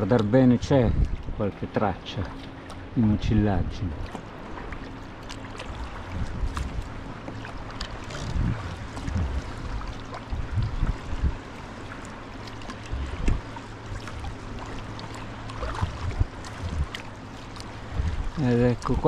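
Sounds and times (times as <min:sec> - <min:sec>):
paddle splashing water: 0:00.0 - 0:19.0
low thumps: 0:05.8 - 0:07.0, 0:08.1 - 0:11.4, 0:12.7 - 0:14.3, 0:15.6 - 0:17.1, 0:17.9 - 0:18.4.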